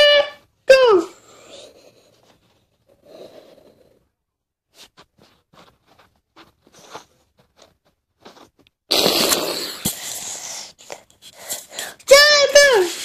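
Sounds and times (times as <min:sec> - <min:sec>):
rubbing rustle on microphone: 0:04.7 - 0:08.8.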